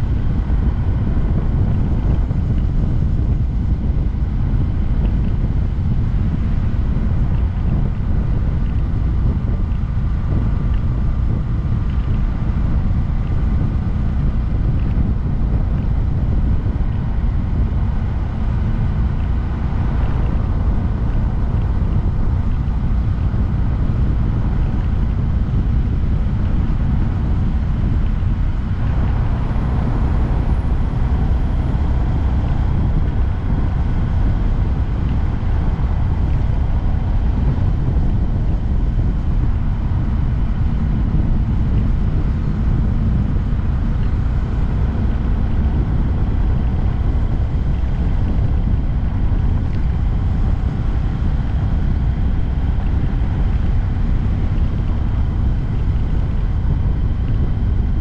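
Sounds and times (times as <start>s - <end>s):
motorcycle engine running: 0.0s - 58.0s
wind rushing on microphone: 0.0s - 58.0s.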